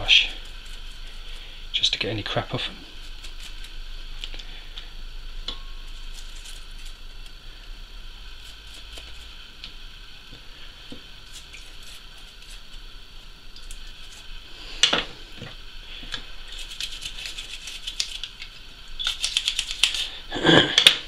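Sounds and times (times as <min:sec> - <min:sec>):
toothbrush scrubbing rubber: 0:00.0 - 0:01.6, 0:02.8 - 0:03.8, 0:08.3 - 0:09.4, 0:11.2 - 0:12.8, 0:13.6 - 0:14.8, 0:16.2 - 0:20.2.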